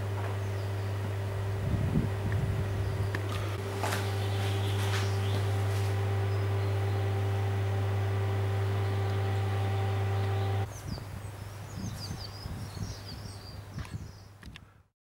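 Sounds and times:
light low rumbling: 0:00.0 - 0:14.2
electrical hum: 0:00.0 - 0:14.4
birds chirping and singing: 0:02.6 - 0:14.4.

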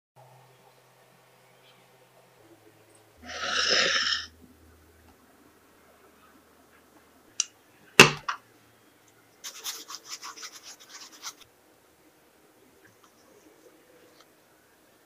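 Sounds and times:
hands scrubbing fruit with salt: 0:09.4 - 0:11.5.

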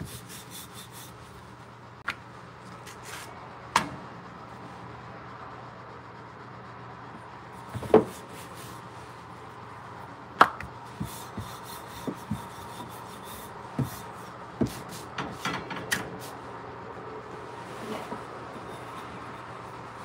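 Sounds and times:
rolling pin rubbing dough: 0:00.0 - 0:01.6, 0:07.6 - 0:09.2, 0:10.8 - 0:15.2, 0:17.5 - 0:20.0.

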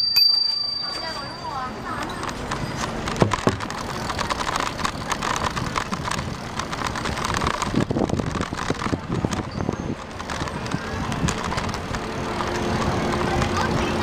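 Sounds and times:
bicycle clicks and rattles: 0:00.0 - 0:14.0
wind rushing over microphone: 0:05.0 - 0:14.0.

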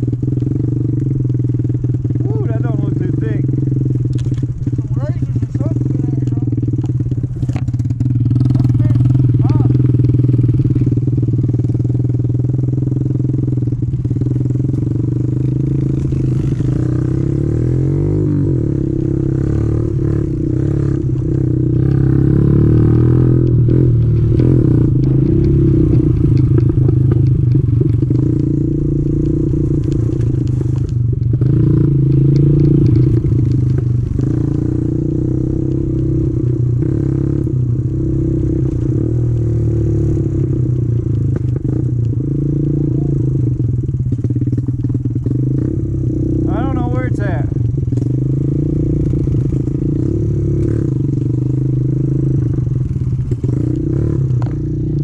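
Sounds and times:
small motorbike engine running: 0:00.0 - 0:55.0.

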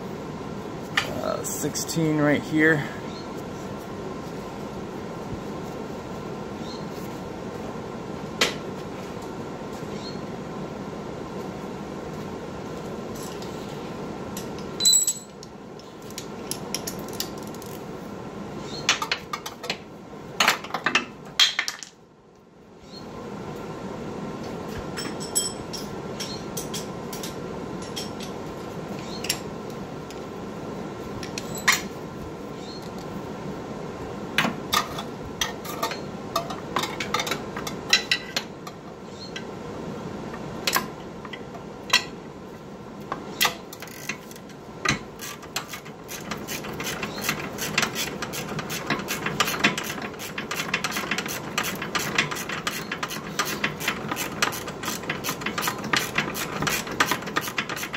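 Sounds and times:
steady shop hum: 0:00.0 - 0:21.4, 0:22.0 - 0:57.9
metal tools clinking on car parts: 0:14.8 - 0:15.4, 0:25.0 - 0:26.9.

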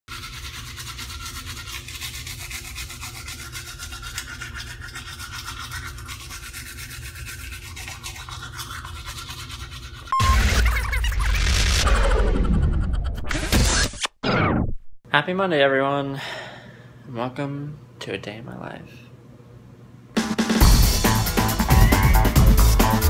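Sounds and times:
toothbrush scrubbing teeth: 0:00.1 - 0:10.1
short beep: 0:10.1 - 0:10.5.

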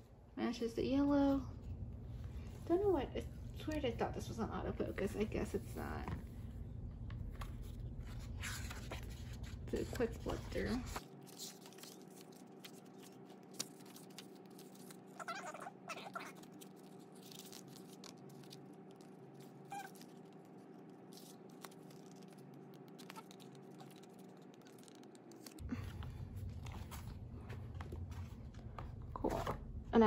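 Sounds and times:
paper pages rustling: 0:07.2 - 0:29.6
low hum: 0:16.4 - 0:30.0.

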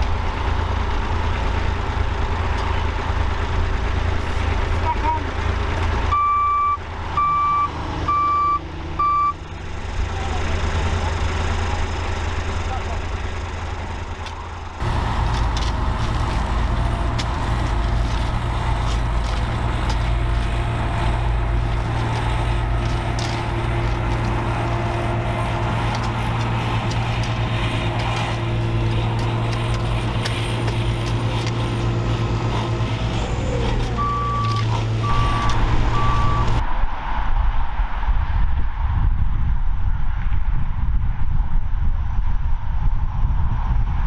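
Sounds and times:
diesel engine running: 0:00.0 - 0:39.5
reversing beeps: 0:06.1 - 0:09.4, 0:34.0 - 0:36.6
spades scraping soil: 0:14.8 - 0:35.0.

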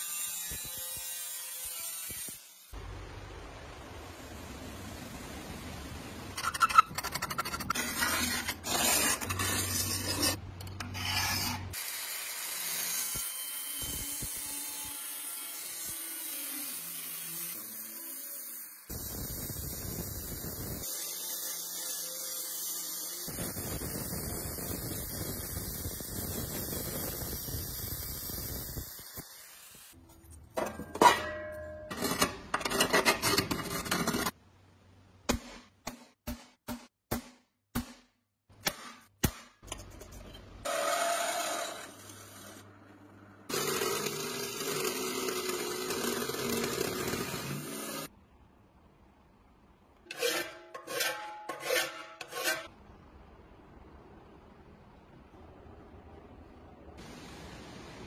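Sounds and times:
scriber scraping metal: 0:06.4 - 0:11.8, 0:50.1 - 0:52.7
angle grinder cutting steel: 0:20.8 - 0:23.5, 0:43.5 - 0:48.1.

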